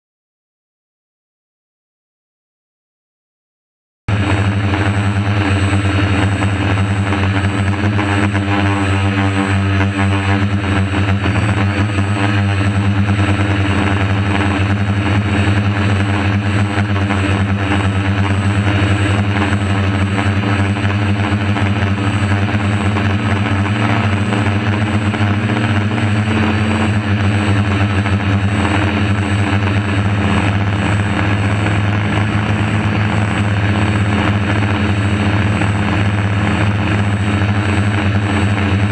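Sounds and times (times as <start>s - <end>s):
drone propellers buzzing: 4.1s - 38.9s.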